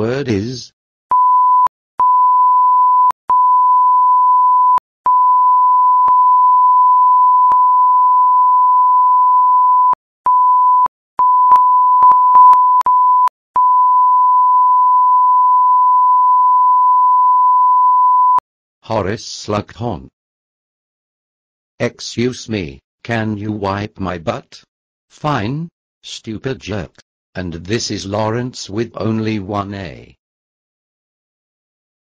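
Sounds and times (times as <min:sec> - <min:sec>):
censor bleep tone: 0:01.1 - 0:18.4.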